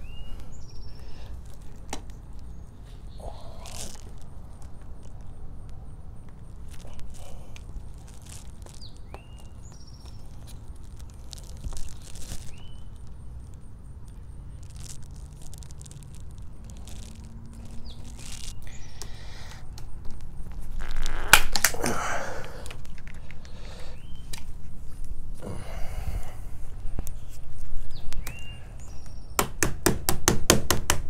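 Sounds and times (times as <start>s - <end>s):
loud crunching cut with cracks: 3.5s - 22.0s.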